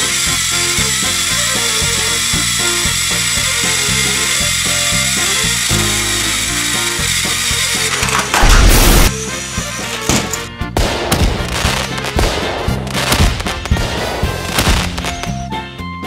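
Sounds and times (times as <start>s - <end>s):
toy train motors whining: 0.0s - 10.6s
music with a steady beat: 8.8s - 16.0s.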